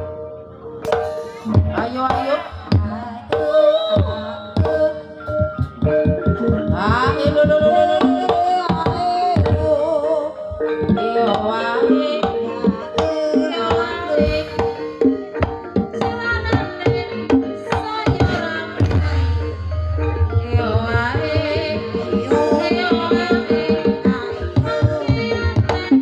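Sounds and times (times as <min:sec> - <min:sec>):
gamelan tones ringing: 0:00.0 - 0:25.9
wavering melody: 0:00.0 - 0:26.0
fast hand drum strokes: 0:17.7 - 0:26.0.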